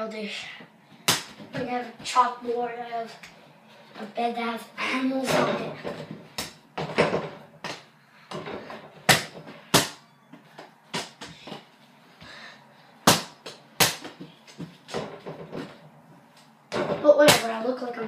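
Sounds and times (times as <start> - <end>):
ball bouncing on hard floor: 5.3 - 11.6, 13.1 - 15.8, 16.7 - 17.4.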